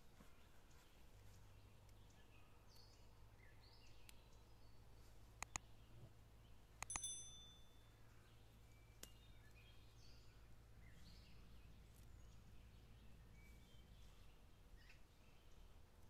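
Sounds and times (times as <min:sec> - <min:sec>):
quick clicks: 0:05.4 - 0:05.6, 0:06.8 - 0:07.2
short bright chime: 0:06.9 - 0:07.8.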